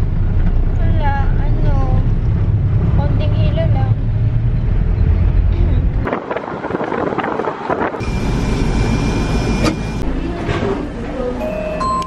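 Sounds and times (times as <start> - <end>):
car engine and road noise inside cabin: 7.4 - 12.0.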